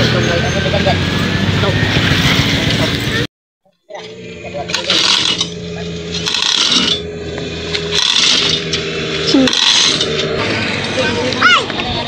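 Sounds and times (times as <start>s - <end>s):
diesel engine idling: 3.9s - 12.0s.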